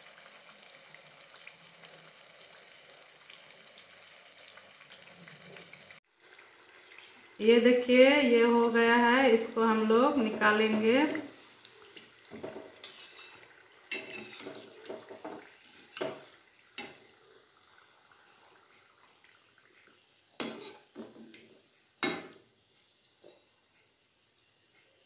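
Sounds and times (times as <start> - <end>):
frying oil sizzling: 0.0 - 25.0
metal utensils scraping a steel pan: 12.8 - 14.7, 20.4 - 20.9.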